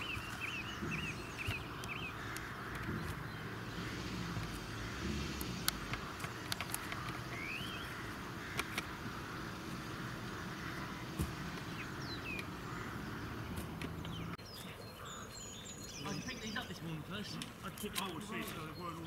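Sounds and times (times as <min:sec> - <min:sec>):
vehicle engine humming: 0:00.0 - 0:14.4
bird calls: 0:00.0 - 0:19.0
sharp clicks: 0:00.2 - 0:07.8, 0:08.4 - 0:09.0.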